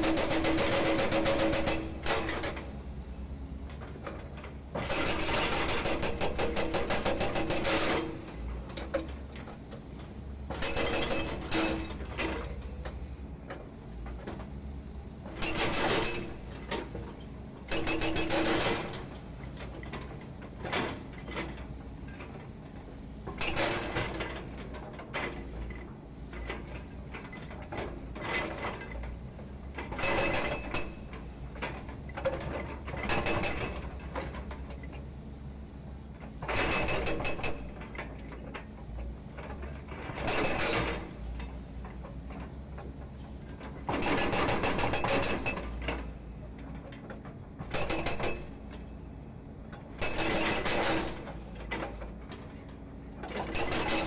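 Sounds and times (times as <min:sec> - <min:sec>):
hydraulic breaker hammering concrete: 0:00.0 - 0:02.6, 0:04.8 - 0:08.3, 0:43.9 - 0:45.8, 0:50.0 - 0:51.4, 0:53.4 - 0:54.0.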